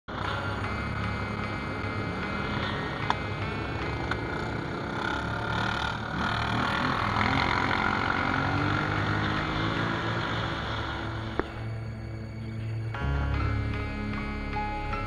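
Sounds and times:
quad bike engine accelerating: 0.1 - 11.7.

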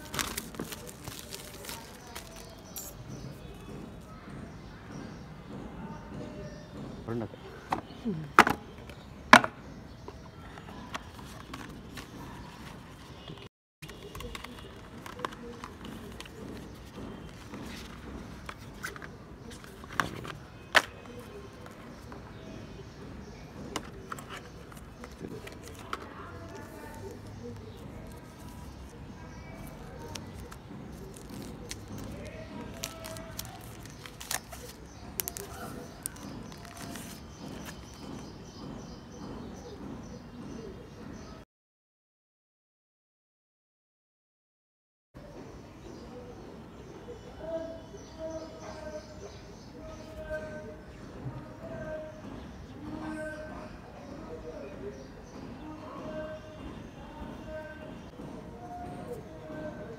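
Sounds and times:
cardboard box handling: 0.0 - 3.0, 23.7 - 28.9, 29.6 - 38.0
plastic wrap crinkling: 0.0 - 3.0, 29.6 - 38.0
outdoor background noise: 0.0 - 41.5, 45.2 - 59.9
plastic phone case being fitted: 13.8 - 16.3, 19.9 - 21.2.

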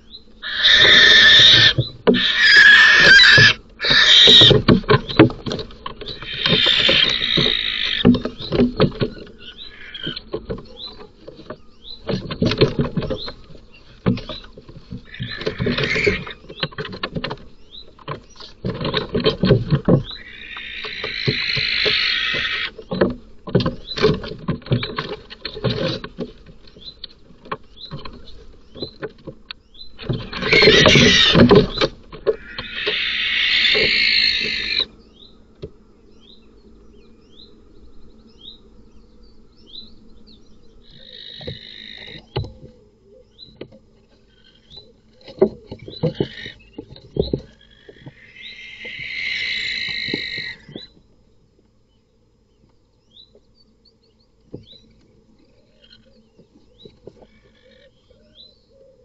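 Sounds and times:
owl hissing screeches: 0.4 - 4.6, 6.2 - 8.1, 9.7 - 10.2, 15.1 - 16.4, 20.2 - 22.7, 30.4 - 31.5, 32.4 - 34.9, 48.1 - 50.7
owls scuffling in wooden box: 0.4 - 34.9, 43.5 - 51.0.

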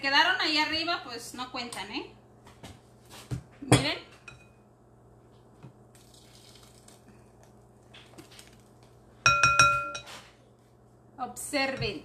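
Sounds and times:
glass clinking: 9.2 - 10.1.

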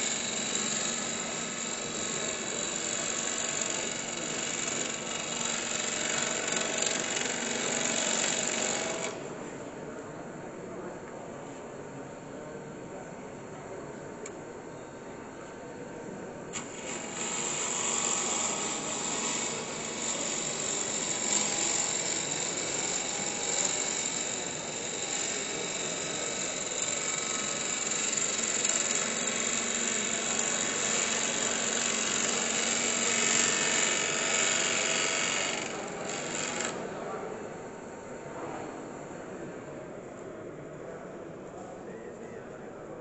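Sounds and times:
lathe motor running: 0.0 - 9.2, 16.6 - 36.8
lathe tool cutting wood: 0.0 - 9.2, 16.6 - 36.8.

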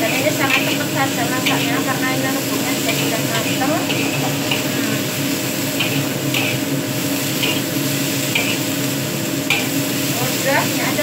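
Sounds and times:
metal spatula scraping wok: 0.0 - 8.7
frying sizzle: 0.0 - 11.0.

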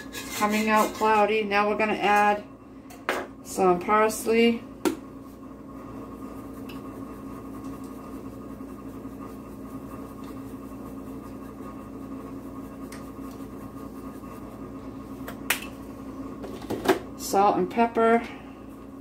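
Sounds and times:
whisk stirring in skillet: 0.0 - 2.3, 5.9 - 15.2
mechanical hum: 0.0 - 19.0.

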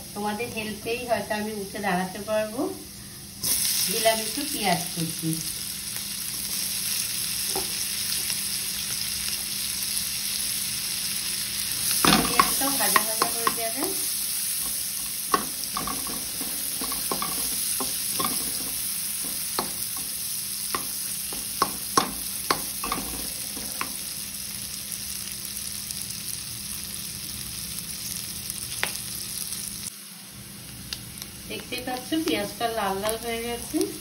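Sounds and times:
onion sizzling in oil: 0.0 - 34.0
spatula knocking against pan: 20.7 - 24.0.

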